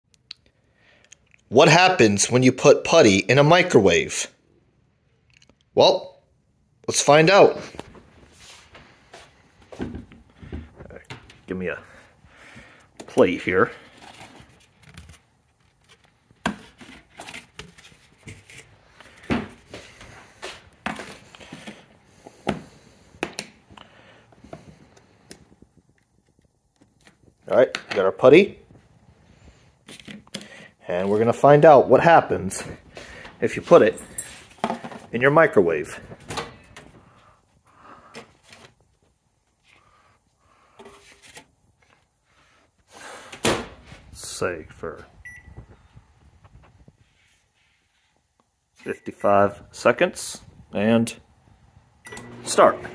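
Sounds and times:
paper plates rustling: 12.6 - 23.3.

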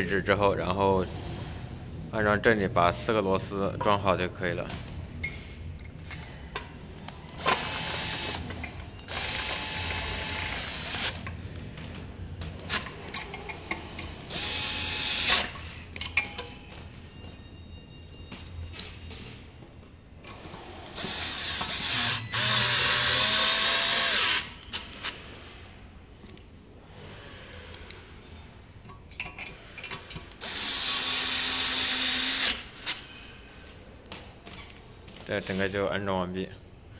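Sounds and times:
power screwdriver whirring: 9.1 - 11.2, 20.9 - 24.6, 30.4 - 33.0.

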